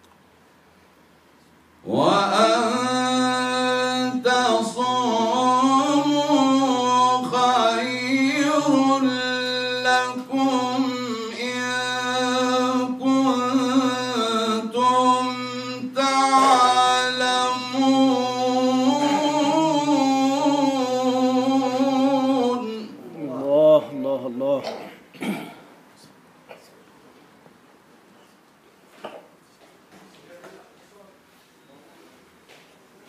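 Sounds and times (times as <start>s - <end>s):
man chanting melodic recitation: 1.8s - 24.8s.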